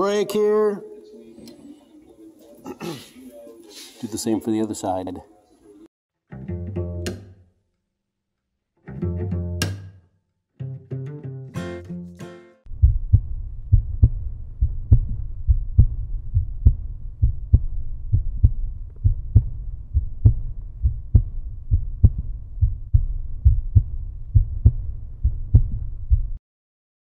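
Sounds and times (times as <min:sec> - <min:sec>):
deep thumping beat: 0:12.7 - 0:26.4.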